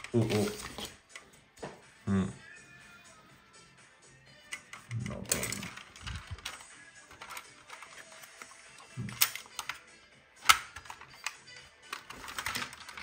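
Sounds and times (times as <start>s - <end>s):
paper wrapping rustling: 0.0s - 1.1s, 5.4s - 8.7s, 10.8s - 13.0s
plastic and metal parts clicking: 4.5s - 13.0s.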